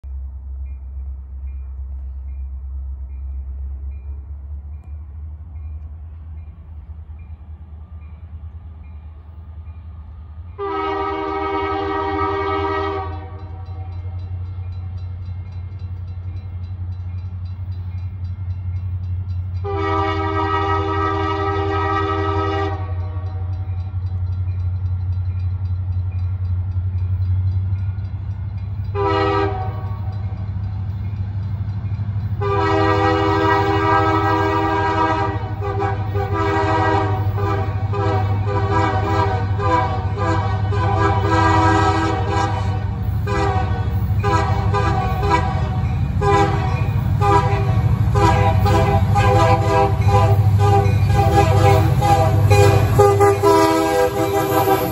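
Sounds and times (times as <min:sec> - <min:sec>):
diesel locomotive rumble: 0:00.0 - 0:54.9
locomotive air horn blasts: 0:10.6 - 0:13.8, 0:19.6 - 0:23.5, 0:28.9 - 0:30.1, 0:32.4 - 0:54.9.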